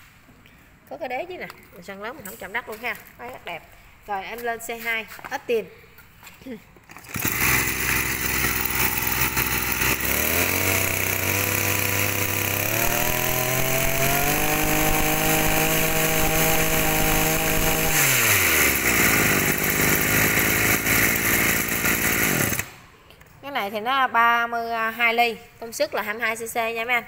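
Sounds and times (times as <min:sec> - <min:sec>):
brush cutter engine revving: 0:06.9 - 0:22.8.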